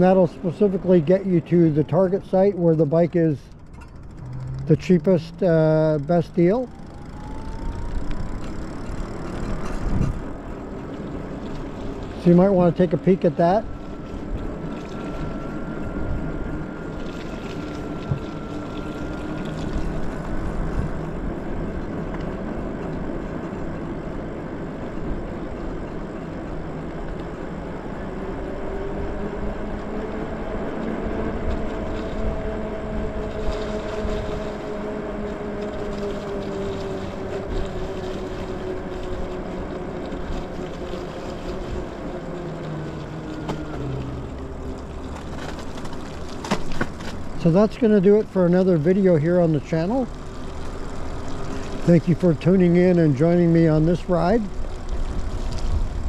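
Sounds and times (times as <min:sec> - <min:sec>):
tyre noise on wet road: 0:00.0 - 0:56.0
electric motor whining: 0:03.5 - 0:10.4.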